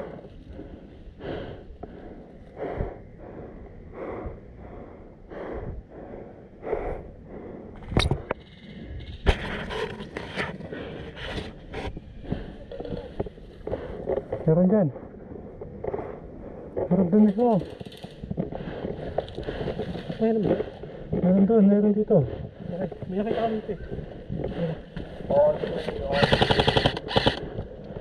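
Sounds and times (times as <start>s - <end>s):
person breathing heavily: 0.0s - 17.0s, 17.7s - 21.2s, 22.0s - 28.0s
sharp clicks: 26.1s - 28.0s.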